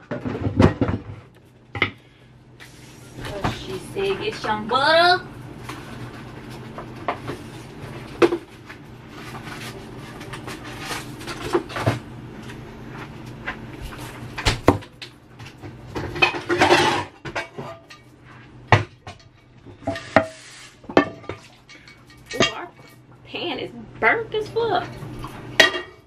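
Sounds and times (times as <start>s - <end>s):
low steady hum: 0.0s - 26.0s
rustling scrape: 9.1s - 11.9s, 19.8s - 20.9s
dishes and utensils clinking: 16.0s - 23.0s, 25.6s - 26.0s.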